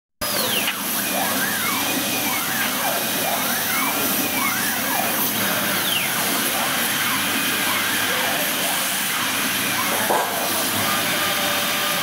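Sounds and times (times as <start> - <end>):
motor whine rising and falling: 0.2 - 12.0.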